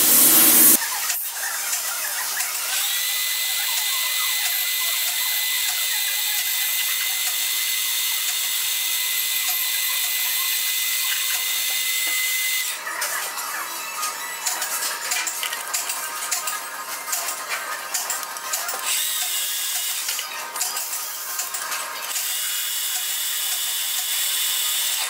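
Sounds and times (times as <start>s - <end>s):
lathe motor whine: 0.0s - 0.8s
cutting tool turning brass rod: 1.7s - 13.2s.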